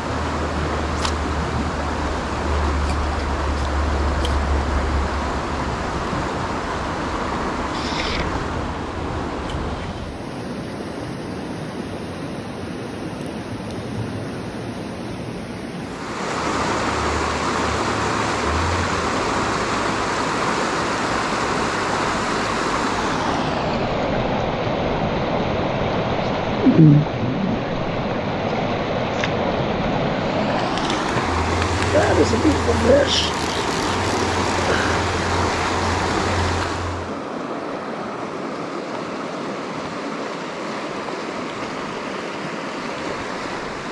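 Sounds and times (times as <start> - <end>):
river water rushing: 0.0 - 43.9
low rumble: 26.4 - 28.2.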